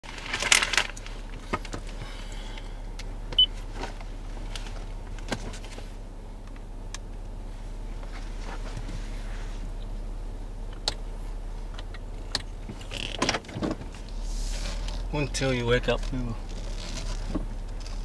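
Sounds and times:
steady low hum: 0.1s - 18.0s
sharp clicks and light knocks: 10.7s - 11.0s, 11.7s - 13.9s.

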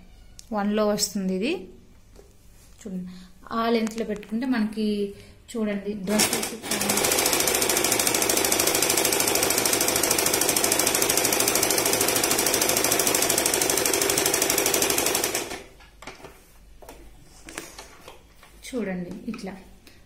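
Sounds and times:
electric sewing machine stitching: 6.1s - 15.8s.

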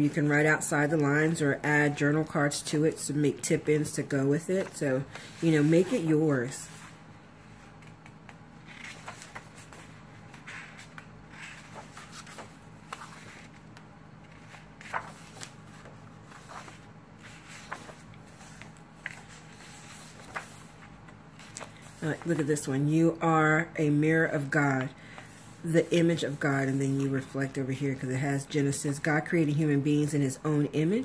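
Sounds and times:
paper pages turning: 4.5s - 22.7s.

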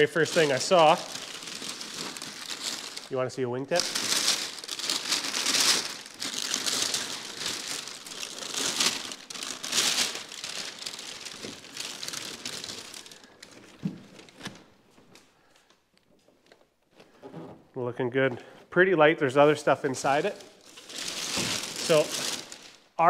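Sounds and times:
packing paper crinkling: 0.0s - 14.7s, 20.0s - 23.0s.

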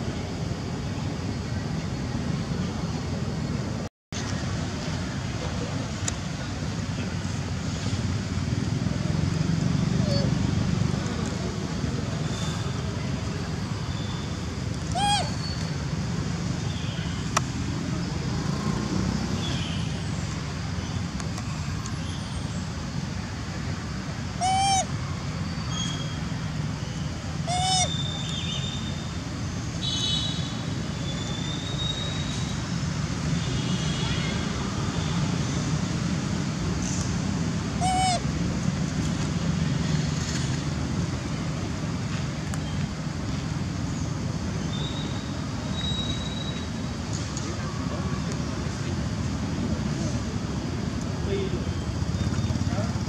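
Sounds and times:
outdoor rumble and hiss: 0.0s - 53.0s
monkey coo calls: 10.0s - 10.4s, 14.8s - 15.5s, 24.4s - 24.9s, 27.4s - 28.0s, 37.8s - 38.3s.

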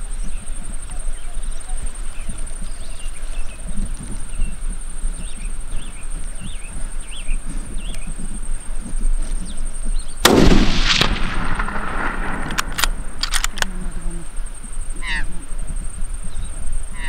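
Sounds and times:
faint chirps: 0.0s - 10.3s, 11.3s - 17.0s
rifle shot with echo: 10.2s - 13.8s.

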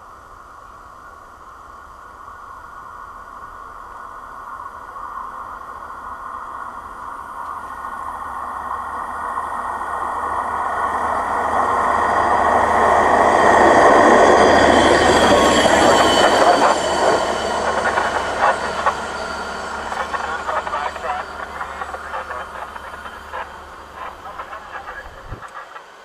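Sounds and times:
rail vehicle rumble: 0.0s - 26.0s
steel wheels squealing on rails: 11.0s - 24.3s.

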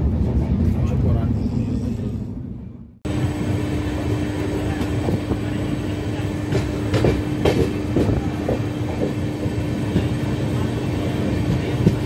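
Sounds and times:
train running on track: 0.0s - 12.0s
wheels clacking over rail joints: 6.4s - 10.3s.

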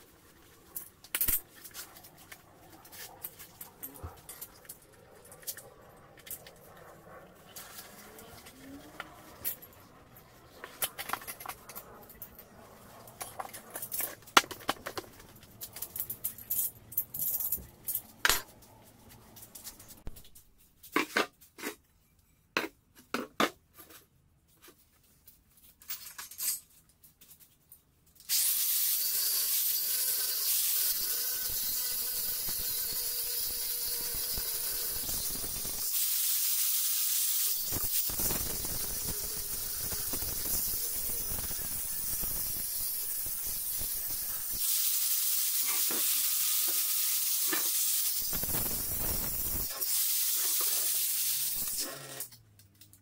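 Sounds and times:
tools clicking and knocking: 13.2s - 18.5s
angle grinder on metal: 28.3s - 52.3s.

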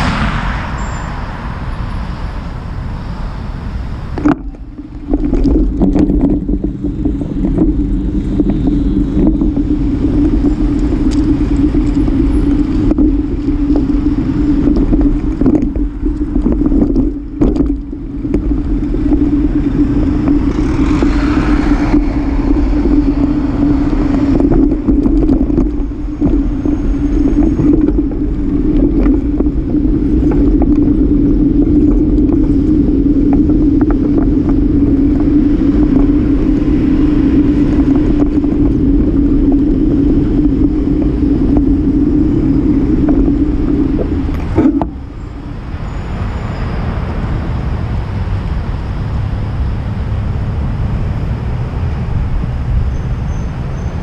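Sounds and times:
wind buffeting microphone: 0.0s - 54.0s
bicycle rattles and clicks: 3.8s - 54.0s.

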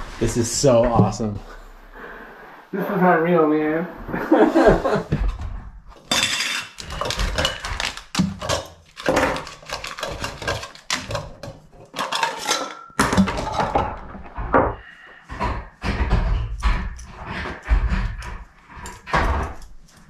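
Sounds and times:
metal cookware clinking: 6.0s - 14.0s.

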